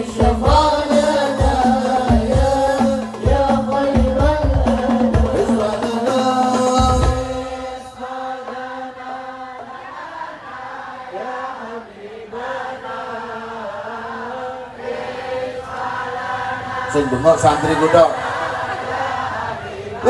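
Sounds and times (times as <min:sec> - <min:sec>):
frame drums beating: 0:00.0 - 0:09.8
men chanting: 0:00.0 - 0:20.0.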